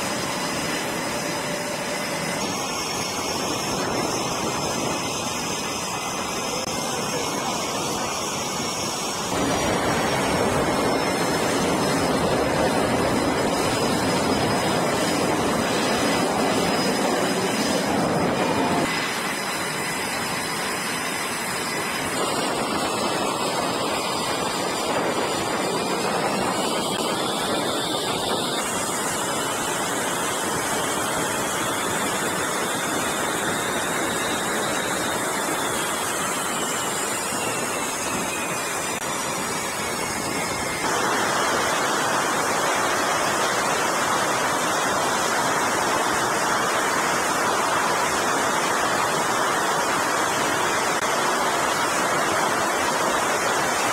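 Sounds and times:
faint high whine: 0.0s - 53.9s
jet engines roaring: 0.0s - 53.9s.

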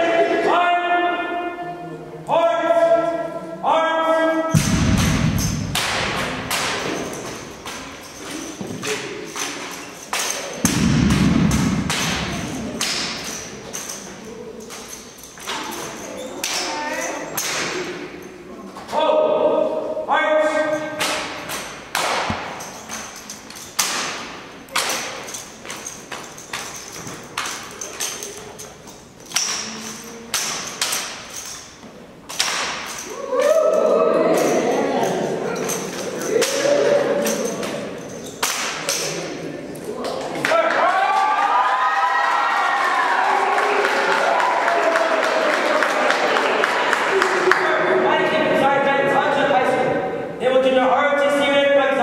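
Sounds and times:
rifles thumping and hands slapping: 4.6s - 18.0s, 21.0s - 33.2s, 37.3s - 39.3s.

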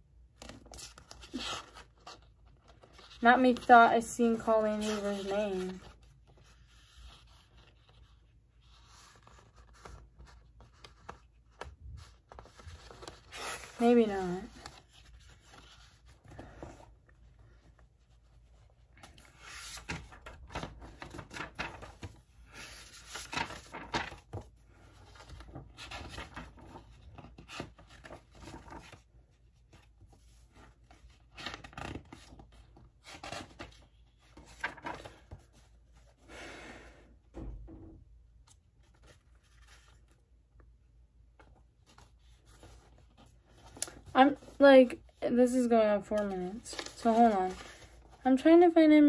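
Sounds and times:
book pages being leafed through: 0.4s - 16.8s, 19.0s - 29.1s, 46.1s - 48.2s.

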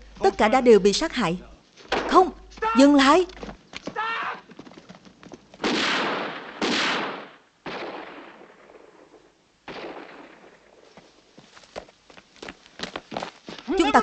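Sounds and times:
gunshots with echo: 5.6s - 10.8s.

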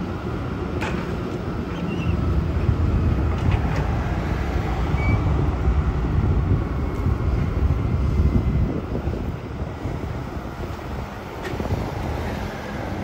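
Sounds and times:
grapple loader working: 0.0s - 13.0s
truck engine rumbling: 0.0s - 13.0s
wind buffeting microphone: 0.0s - 13.0s.

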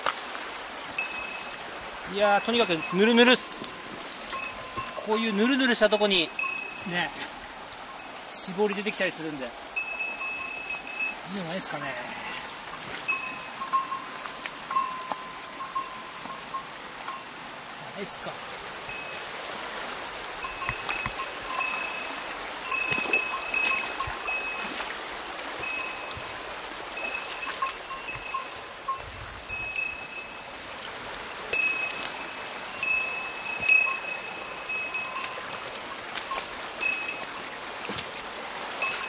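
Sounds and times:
flowing water rushing: 0.0s - 39.0s
bright metallic clinks: 1.0s - 1.6s, 2.2s - 3.7s, 4.3s - 6.9s, 13.1s - 17.4s, 20.4s - 24.7s, 25.6s - 26.2s, 27.0s - 30.4s, 31.5s - 35.7s, 36.3s - 37.5s.

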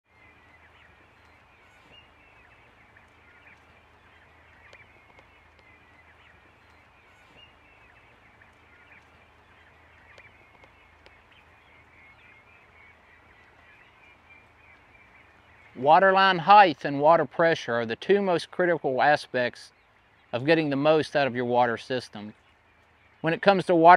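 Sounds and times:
low steady hum: 0.1s - 18.0s
turkeys calling: 0.1s - 23.9s.

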